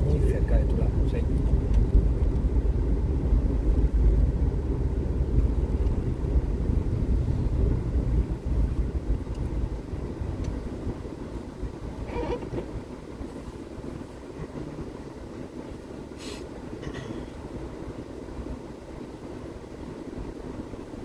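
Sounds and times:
car engine and tyres rumbling: 0.0 - 21.0.

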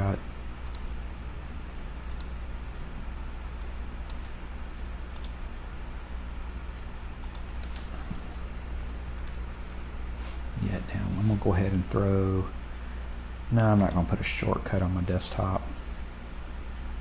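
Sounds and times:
steady low hum: 0.0 - 17.0
computer mouse clicks: 0.6 - 0.9, 2.1 - 2.4, 3.1 - 4.4, 5.1 - 5.4, 7.2 - 8.2.

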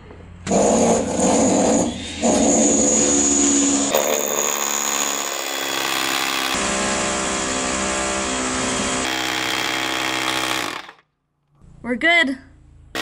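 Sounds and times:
rotary hammer boring into concrete: 3.9 - 6.6, 9.0 - 11.0.

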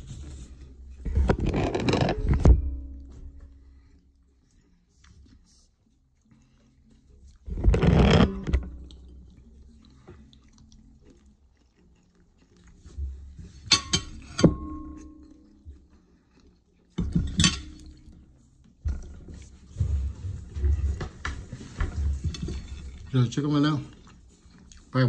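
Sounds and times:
tableware rubbing and knocking: 1.0 - 3.0, 7.5 - 8.8, 13.6 - 15.2, 17.0 - 18.0, 18.9 - 23.1
dishes clinking: 13.5 - 15.4, 17.0 - 18.1.

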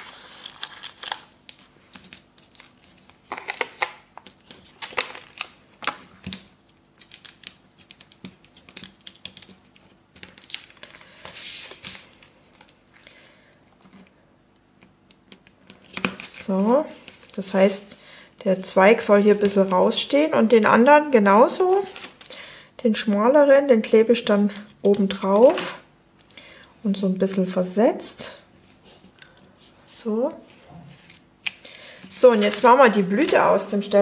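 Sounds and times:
paper rustling and crinkling: 0.0 - 12.9, 32.1 - 33.9.

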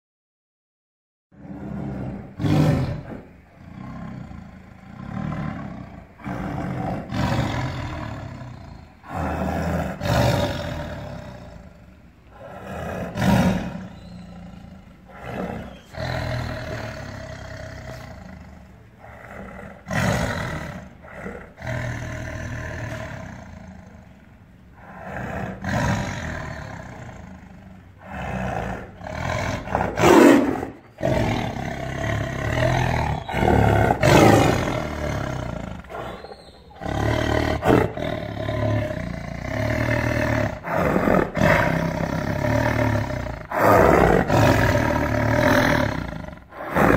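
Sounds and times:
tiger roaring and snarling: 1.4 - 46.9.

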